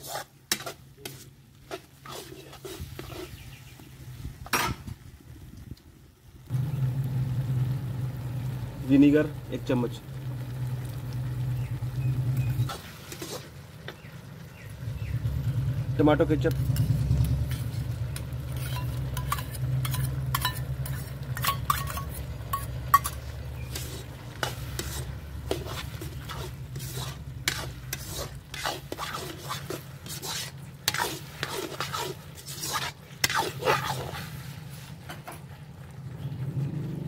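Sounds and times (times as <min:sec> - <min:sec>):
metal skimmer scraping pan: 0:00.0 - 0:03.5, 0:12.4 - 0:14.0, 0:16.4 - 0:35.5
low sizzle: 0:00.0 - 0:37.0
spoon clinking on steel bowl: 0:18.6 - 0:23.2.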